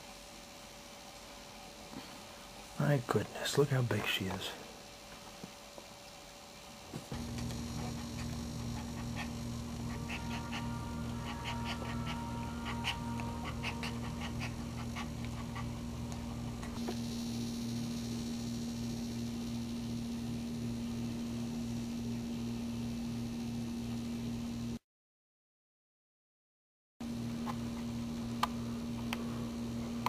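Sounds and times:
pulsing hum: 7.1s - 23.2s
dog whimpering: 7.8s - 16.1s.

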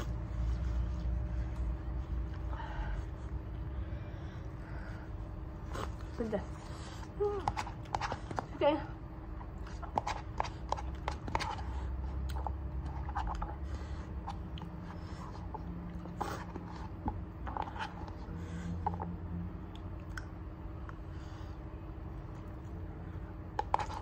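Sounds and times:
fork scraping paper cup: 7.4s - 8.4s, 9.6s - 19.0s, 23.6s - 24.0s.

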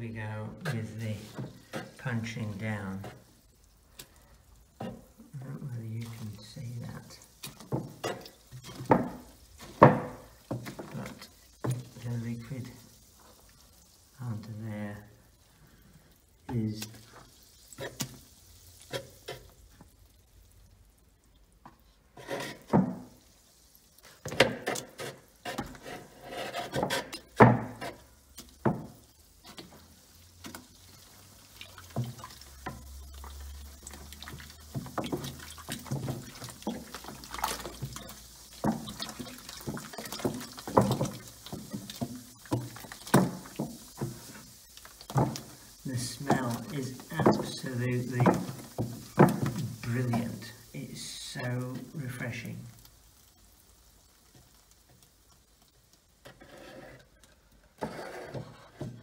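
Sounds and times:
pulpy liquid sloshing in bucket: 24.0s - 50.8s.

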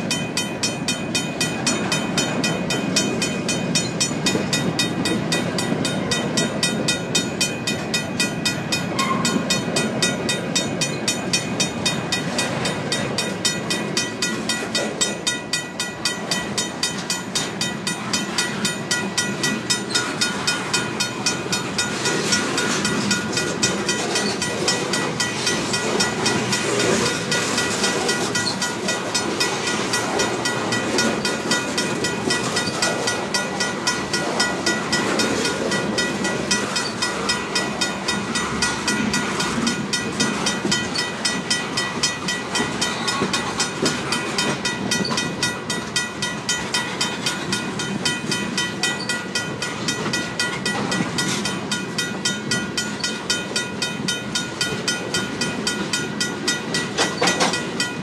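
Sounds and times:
freight train rumbling on rails: 0.0s - 58.0s
mechanical crossing bell ringing: 0.0s - 58.0s.

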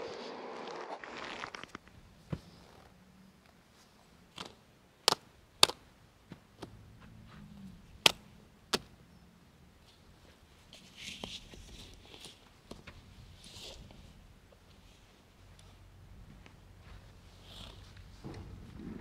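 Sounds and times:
footsteps on dirt: 6.2s - 8.4s, 14.7s - 19.0s.

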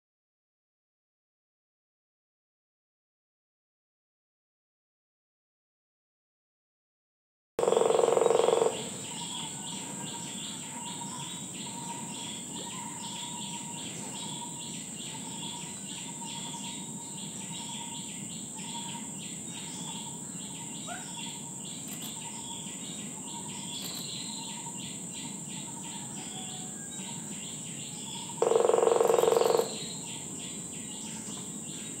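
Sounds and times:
woodpecker drumming on tree: 7.6s - 9.1s, 23.6s - 24.1s, 28.3s - 30.0s
high-pitched insect buzz: 7.6s - 9.5s, 20.8s - 25.7s, 28.0s - 31.9s.

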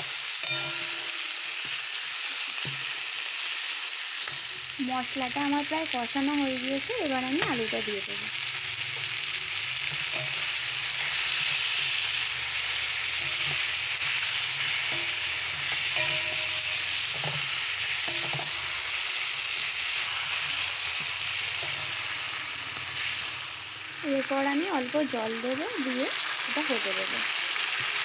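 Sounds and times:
food sizzling in hot oil: 0.0s - 28.0s
spatula scraping metal pan: 8.9s - 23.6s.

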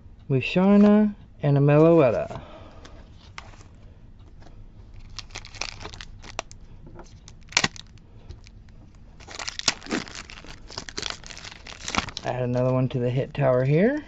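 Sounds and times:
foil wrapper crinkling and tearing: 5.0s - 12.7s
trading cards clicking and rustling: 5.0s - 13.8s
sharp crackle: 9.2s - 12.3s.

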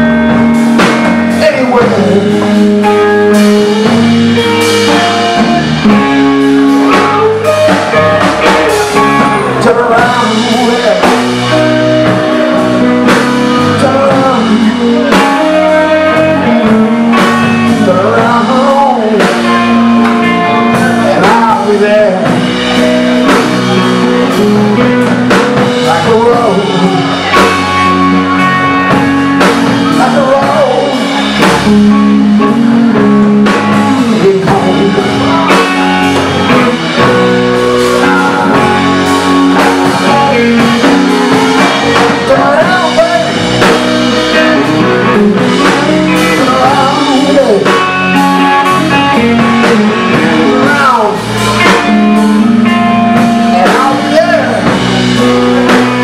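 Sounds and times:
drum kit: 0.0s - 56.0s
electric bass: 0.0s - 56.0s
electric guitar bending notes: 0.0s - 56.0s.

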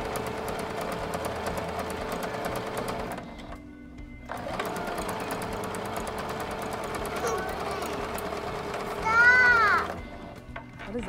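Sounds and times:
sewing machine stitching fabric: 0.0s - 3.6s, 4.3s - 11.0s.

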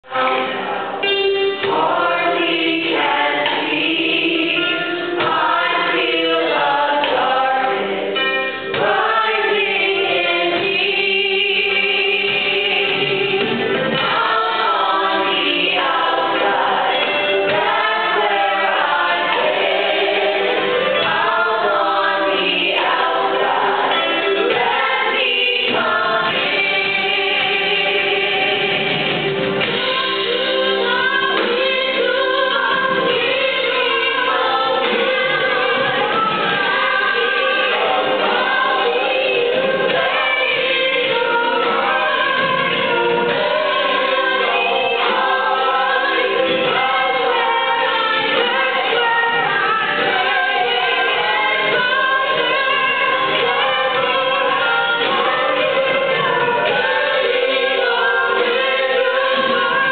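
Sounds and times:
ensemble singing in chorus: 0.0s - 59.9s.

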